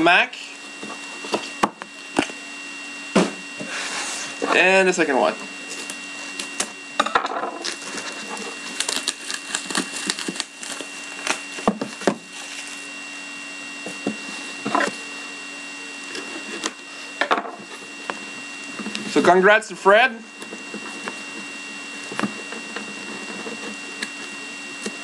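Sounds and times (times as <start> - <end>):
plastic shrink wrap crackling: 7.6 - 12.9.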